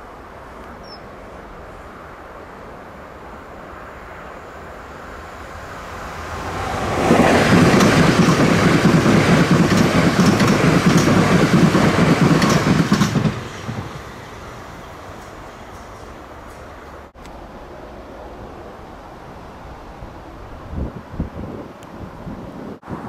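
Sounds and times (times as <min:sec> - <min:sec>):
passenger train rushing past: 0:01.2 - 0:20.8
wheels clicking over rail joints: 0:07.0 - 0:14.1.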